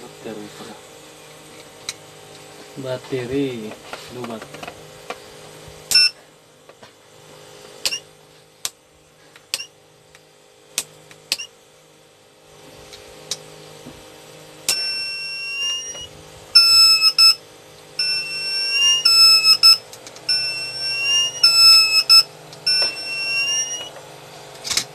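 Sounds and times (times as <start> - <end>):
alarm buzzer beeping: 5.9 - 6.2, 14.7 - 17.4, 18.0 - 23.9.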